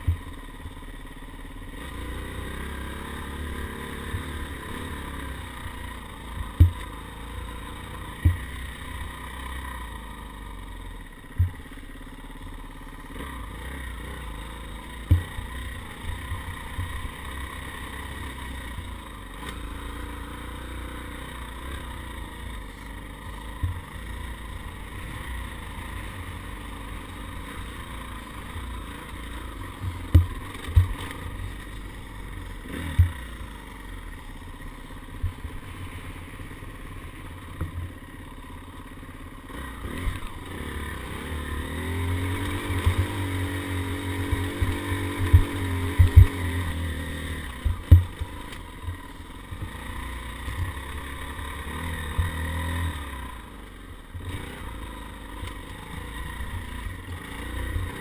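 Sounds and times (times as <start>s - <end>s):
dirt bike engine: 0.0s - 58.0s.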